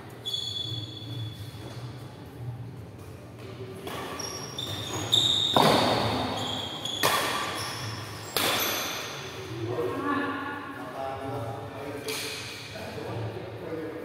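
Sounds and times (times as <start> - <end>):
shoes squeaking on court: 0.1 - 2.2, 3.0 - 9.3
rackets hitting shuttlecock: 3.8 - 7.6, 8.2 - 9.1.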